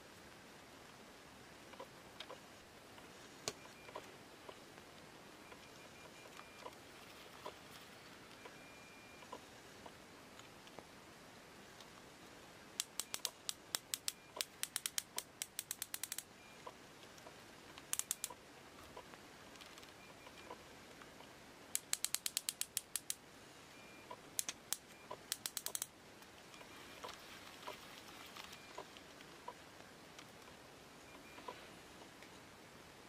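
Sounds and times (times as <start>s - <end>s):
fishing reel clicker clicking: 12.8s - 16.2s, 17.9s - 18.3s, 21.8s - 23.2s, 24.4s - 25.9s.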